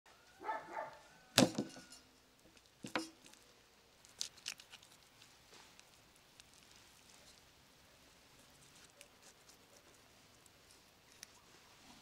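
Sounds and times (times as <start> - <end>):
carcass thudding onto table: 1.4 - 1.8.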